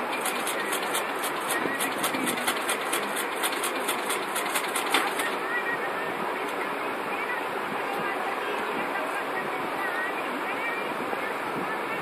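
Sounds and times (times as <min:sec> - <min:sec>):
fast even ticking: 0:00.1 - 0:05.4.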